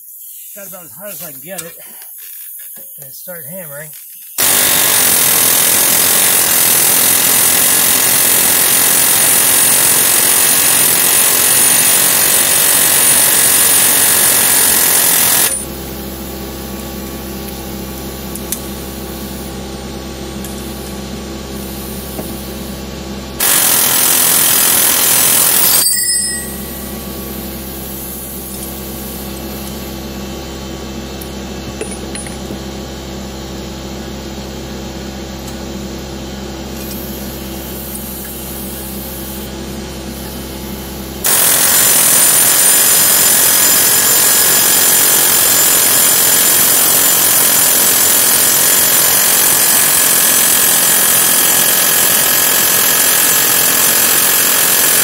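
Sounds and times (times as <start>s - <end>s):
steady quiet hum: 0.0s - 4.4s
pneumatic air hammer: 4.3s - 15.8s, 21.5s - 22.7s, 23.4s - 30.0s, 36.7s - 40.6s, 41.2s - 55.0s.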